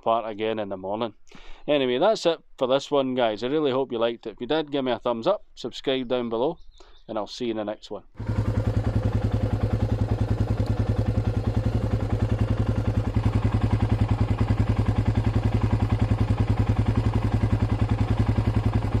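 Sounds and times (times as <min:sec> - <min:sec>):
motorcycle engine idling: 0:08.2 - 0:19.0.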